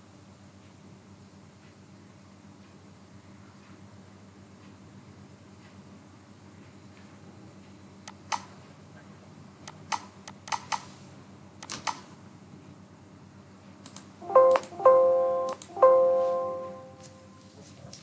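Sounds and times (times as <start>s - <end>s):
keyboard keystrokes: 13.9s - 15.8s
ringing musical notes: 14.2s - 17.5s.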